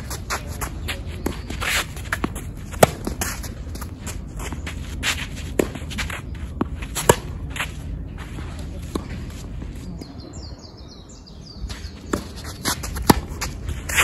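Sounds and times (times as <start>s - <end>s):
footsteps shuffling on court: 0.0s - 10.6s, 11.2s - 14.0s
tennis ball struck by racquet: 2.1s - 3.4s, 6.6s - 7.4s, 12.0s - 14.0s.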